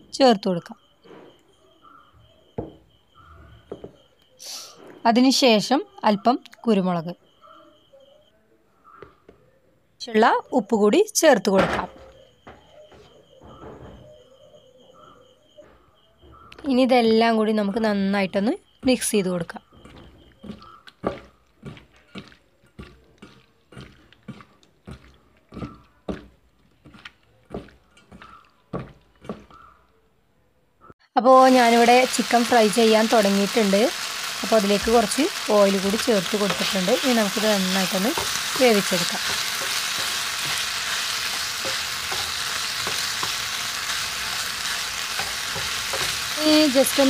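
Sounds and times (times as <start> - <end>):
wet squelches of mixing meat: 19.8 - 29.6
spatula scraping and tapping pan: 19.8 - 29.7, 36.1 - 47.0
chicken sizzling in oil: 31.3 - 47.0.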